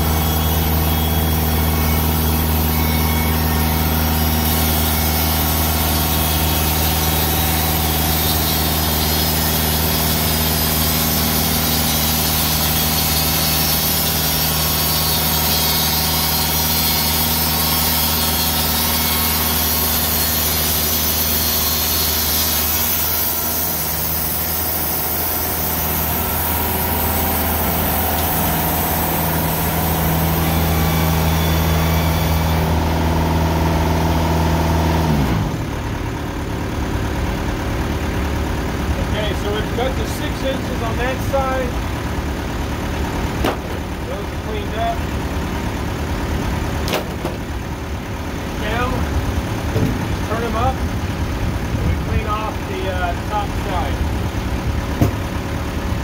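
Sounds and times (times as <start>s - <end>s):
sawmill engine running: 0.0s - 56.0s
saw blade hissing through logs: 0.1s - 32.7s.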